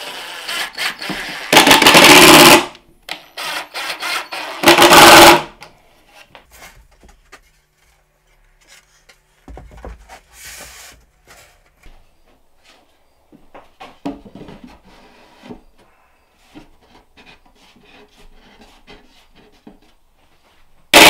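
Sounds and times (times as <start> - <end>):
cordless drill whirring: 0.0 - 1.6, 3.1 - 4.9.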